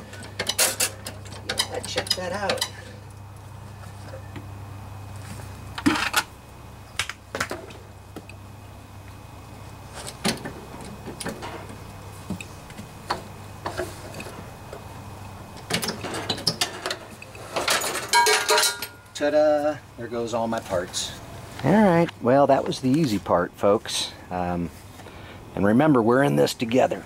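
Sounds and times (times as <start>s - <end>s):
low steady hum: 0.0s - 27.0s
metallic knocks and clinks: 17.7s - 19.1s.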